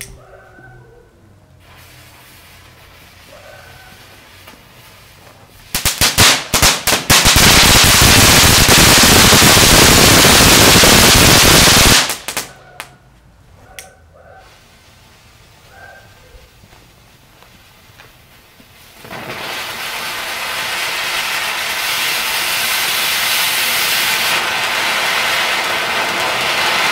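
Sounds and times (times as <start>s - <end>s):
firework fountain crackling sparks: 1.6s - 12.5s, 16.7s - 26.9s
firework cracks: 5.6s - 12.9s, 18.7s - 26.9s
firework pops: 18.0s - 20.0s, 23.8s - 26.9s.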